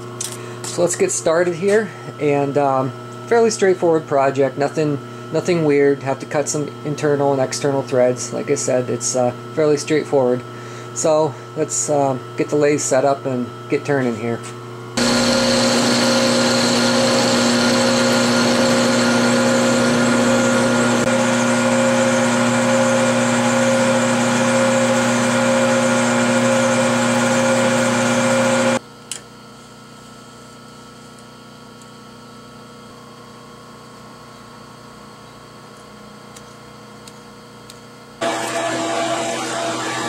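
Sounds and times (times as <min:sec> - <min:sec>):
metal lathe whining: 0:15.0 - 0:28.8, 0:38.2 - 0:40.0
click: 0:29.1 - 0:29.3.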